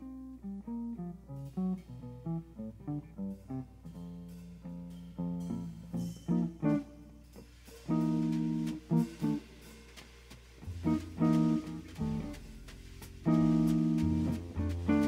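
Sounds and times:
guitar playing slow blues: 0:00.0 - 0:07.0, 0:07.9 - 0:09.4, 0:10.8 - 0:12.3, 0:13.3 - 0:15.0.

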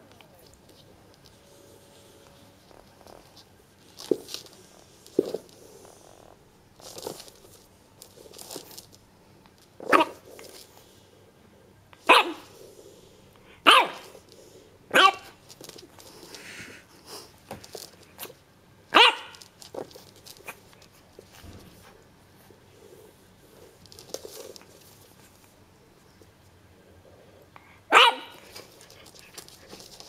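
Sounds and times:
puppy barking: 0:09.9 - 0:10.2, 0:12.1 - 0:12.5, 0:13.6 - 0:14.1, 0:14.9 - 0:15.4, 0:18.9 - 0:19.4, 0:27.9 - 0:28.5.

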